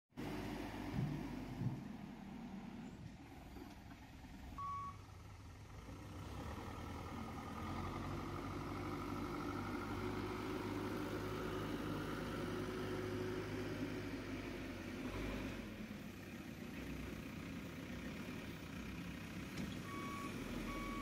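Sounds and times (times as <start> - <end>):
backhoe diesel engine running: 0.2 - 21.0
short beep: 4.6 - 5.0.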